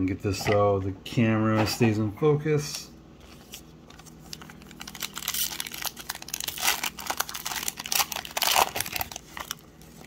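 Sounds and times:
foil wrapper crinkling: 0:03.3 - 0:10.0.

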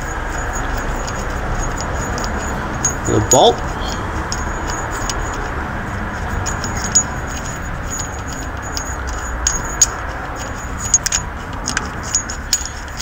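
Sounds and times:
metallic ticks and clinks: 0:00.0 - 0:13.0.

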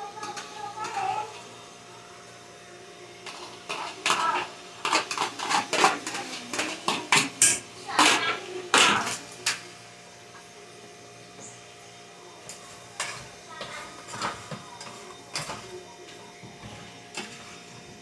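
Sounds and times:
spoon scraping and knocking on pots: 0:00.2 - 0:01.4, 0:03.2 - 0:09.6, 0:12.4 - 0:18.0.

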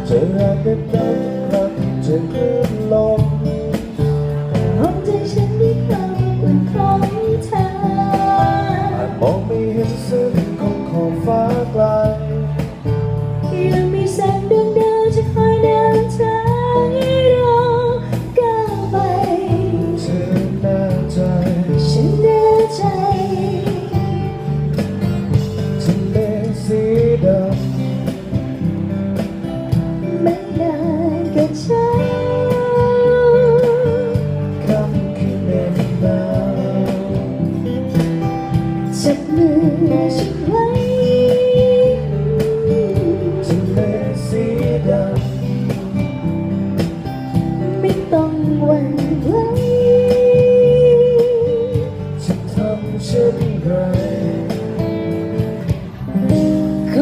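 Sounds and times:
acoustic guitar: 0:00.0 - 0:57.0
electric bass: 0:00.0 - 0:57.0
keyboard: 0:00.0 - 0:57.0
woman singing into microphone: 0:04.4 - 0:11.7, 0:13.4 - 0:24.5, 0:30.0 - 0:37.8, 0:38.5 - 0:46.3, 0:47.0 - 0:54.8, 0:56.2 - 0:57.0.

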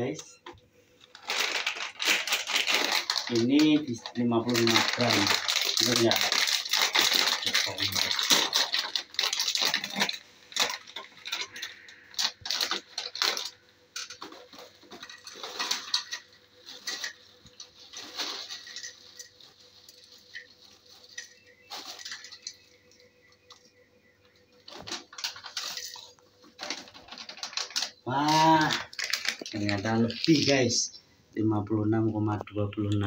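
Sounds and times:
plastic snack bag crinkling: 0:01.0 - 0:23.7, 0:24.6 - 0:30.9
chips clattering onto plate: 0:18.1 - 0:19.4, 0:21.1 - 0:22.6.

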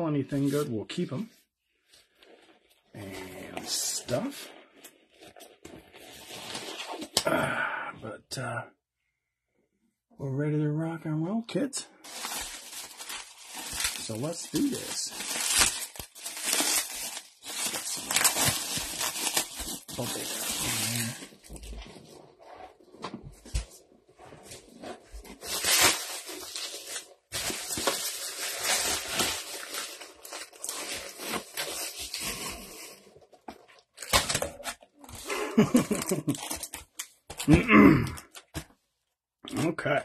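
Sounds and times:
plastic wrap crinkling and tearing: 0:12.0 - 0:22.1, 0:24.7 - 0:38.6.

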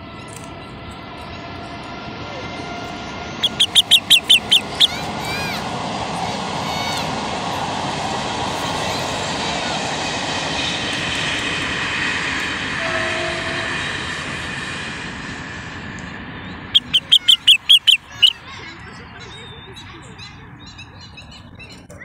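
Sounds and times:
bird sharp notes: 0:03.4 - 0:05.0, 0:16.8 - 0:18.4
faint drawn-out high tones: 0:12.8 - 0:14.1.

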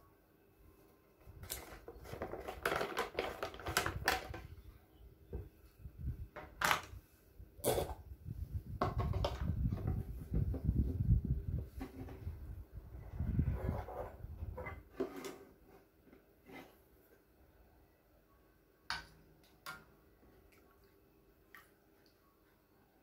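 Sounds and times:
plastic bottle crackling: 0:01.4 - 0:04.5.

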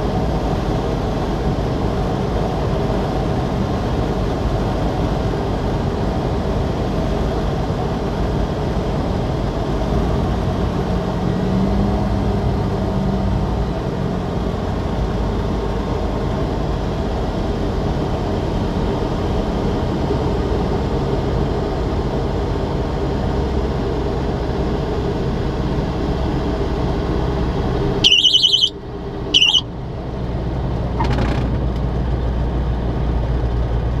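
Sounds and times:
light aircraft engine and propeller: 0:00.0 - 0:34.0
short high-pitched squeals: 0:28.0 - 0:29.7.

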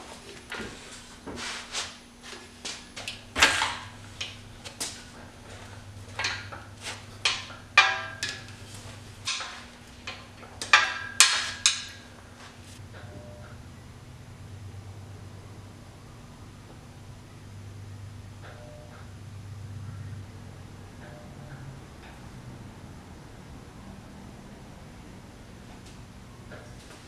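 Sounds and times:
metallic clanks and knocks: 0:03.0 - 0:12.2.

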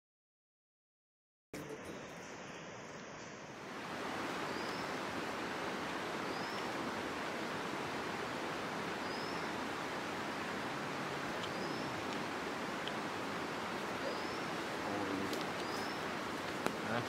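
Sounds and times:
river water rushing: 0:03.5 - 0:17.0.

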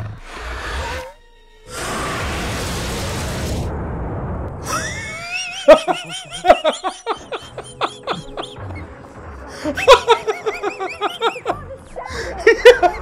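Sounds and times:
man laughing hard: 0:04.6 - 0:11.6, 0:12.2 - 0:13.0.

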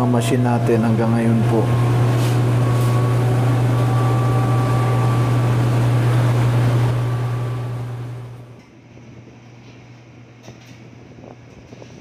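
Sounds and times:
laundry machines humming: 0:00.0 - 0:08.7.

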